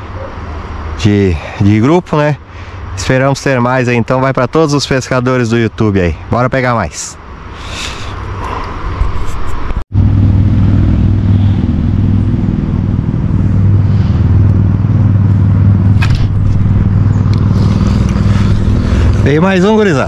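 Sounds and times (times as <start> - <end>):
low motor hum: 9.0 - 20.0.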